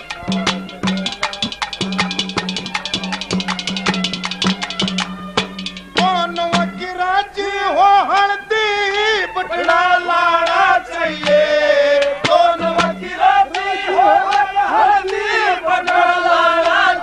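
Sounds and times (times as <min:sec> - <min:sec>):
sharp percussion strokes: 0:00.0 - 0:06.9
man singing folk song: 0:06.0 - 0:15.7.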